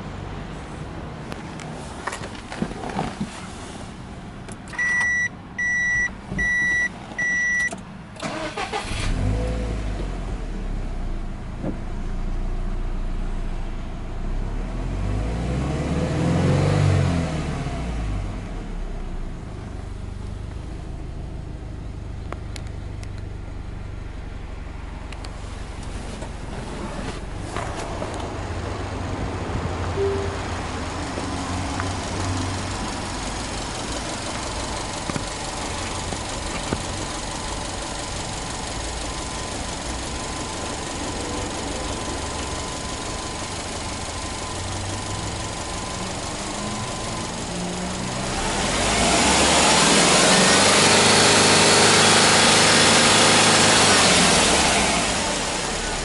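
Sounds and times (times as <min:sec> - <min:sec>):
car engine starting and idling: 0:00.0 - 0:56.0
short electronic warning beeps: 0:04.8 - 0:07.8, 0:30.0 - 0:30.6
car engine revving: 0:30.0 - 0:56.0.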